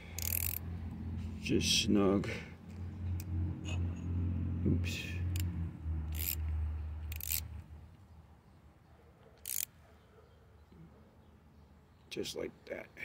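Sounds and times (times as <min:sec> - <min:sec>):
metal socket clicking and scraping: 0:00.1 - 0:00.7, 0:05.3 - 0:07.6, 0:09.4 - 0:09.7.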